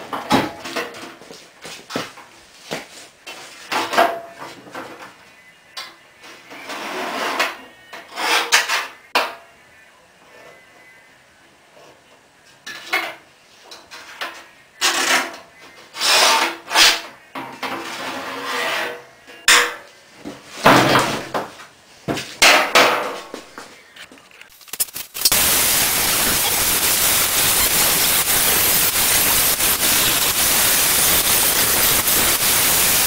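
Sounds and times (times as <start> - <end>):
scribe scratching sheet metal: 24.5 - 33.0.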